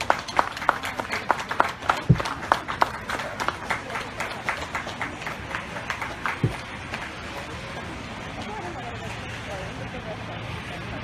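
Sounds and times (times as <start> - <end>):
people clapping: 0.0 - 7.9.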